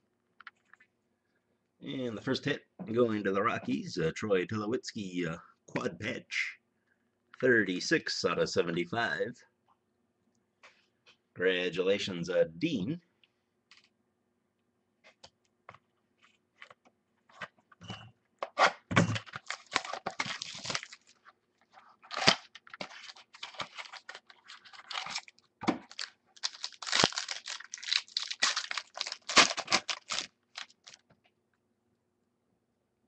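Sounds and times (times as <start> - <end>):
wrapper crinkling and tearing: 19.1 - 21.3, 22.0 - 31.0
cards being handled: 22.0 - 31.1.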